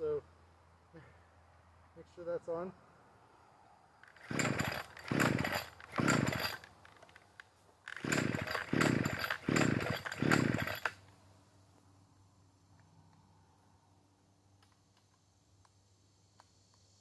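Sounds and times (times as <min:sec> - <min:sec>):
string trimmer engine cranking: 0:04.0 - 0:11.1.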